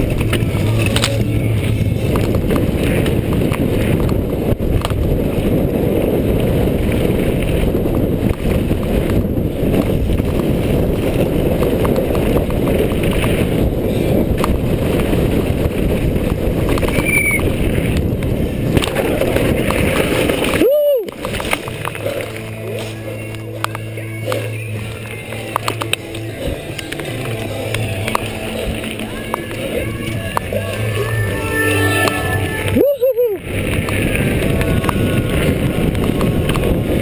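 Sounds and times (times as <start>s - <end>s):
tyres rolling over gravel: 0.0s - 32.8s
wind buffeting microphone: 0.0s - 37.0s
high squeak: 16.9s - 17.4s, 29.8s - 33.2s.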